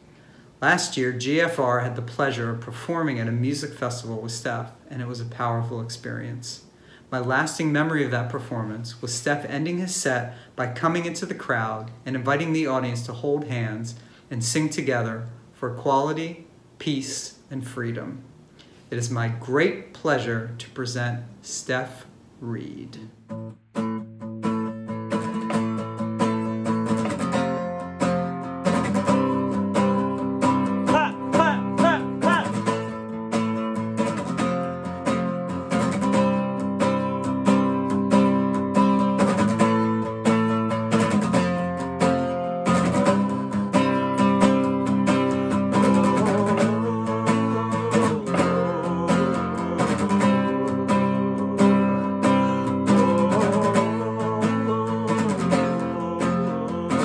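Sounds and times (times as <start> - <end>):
acoustic guitar strumming chords: 0.0 - 15.9, 22.6 - 57.0
man singing: 30.7 - 33.0, 45.0 - 57.0.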